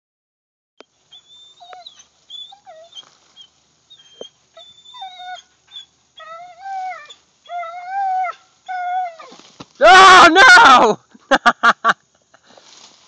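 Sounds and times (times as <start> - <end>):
dog whining and whimpering: 1.1 - 9.4.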